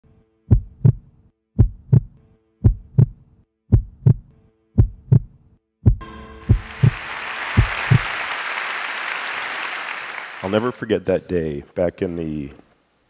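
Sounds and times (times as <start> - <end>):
heartbeat thumps: 0.5 - 7.0, 7.6 - 8.0
soft sustained musical chord: 6.0 - 8.1.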